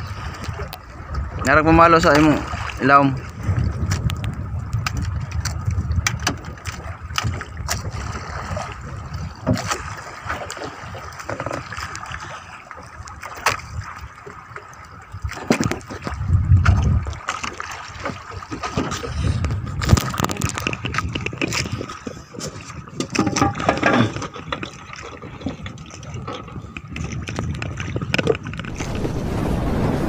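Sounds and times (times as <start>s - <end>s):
low rumbling bumps: 0.0s - 9.9s, 25.3s - 30.0s
water sloshing against boat hull: 0.0s - 29.2s
sharp knocks and clicks: 23.0s - 24.8s.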